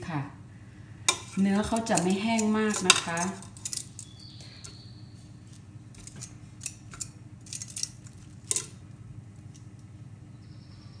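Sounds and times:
low steady hum: 0.0 - 11.0
metal tongs clicking on plate: 1.1 - 4.1, 6.0 - 8.8.

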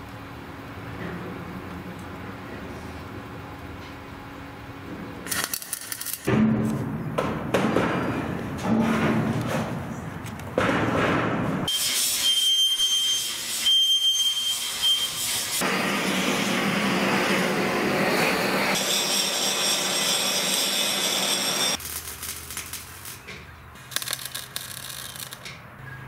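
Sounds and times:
thin high whistle: 11.7 - 15.2.

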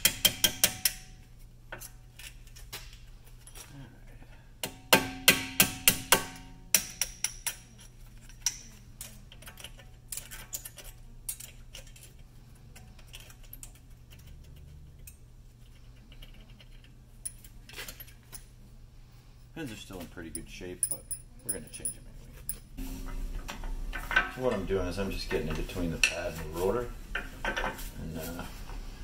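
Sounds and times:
hammer striking metal pins: 0.0 - 1.2, 4.6 - 7.8
metal parts clinking: 7.4 - 12.2, 20.2 - 22.7.

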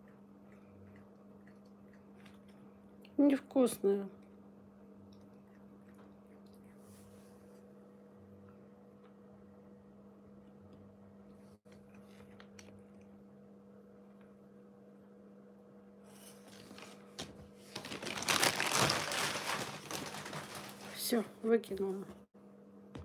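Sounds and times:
steady low hum: 0.0 - 17.8
plastic bag crinkling: 16.4 - 21.2.

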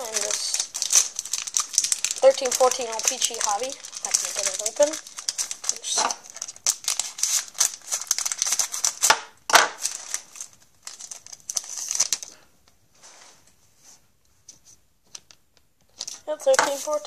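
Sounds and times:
faint handling of cards: 0.0 - 9.1, 9.8 - 17.0
plastic wrapper tearing and crinkling: 0.0 - 12.4, 15.9 - 17.0.

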